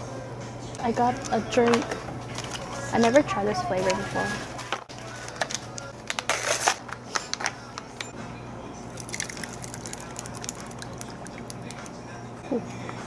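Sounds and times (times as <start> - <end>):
ice cubes rattling: 9.0 - 11.8
plastic crackling: 9.0 - 12.0.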